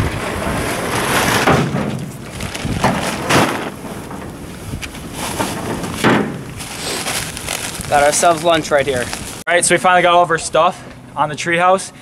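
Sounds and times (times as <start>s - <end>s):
camping gear rustling and knocking: 1.4s - 9.4s.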